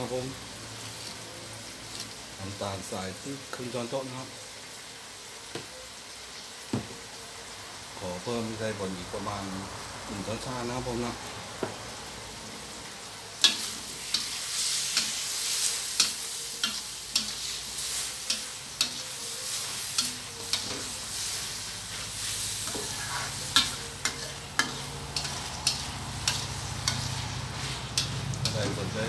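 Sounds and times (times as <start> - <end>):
food sizzling: 0.0 - 29.0
spatula scraping a metal wok: 13.4 - 29.0.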